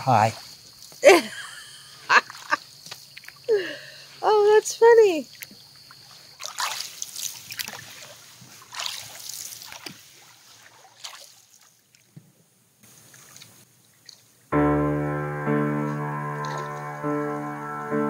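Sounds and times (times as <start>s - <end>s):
paddle splashing in water: 5.3s - 14.4s, 16.2s - 17.6s
piano music: 14.5s - 18.0s.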